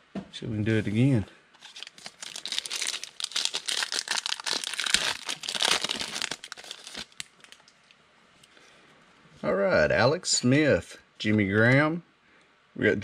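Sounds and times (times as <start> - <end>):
foil wrapper crinkling and tearing: 1.6 - 7.7.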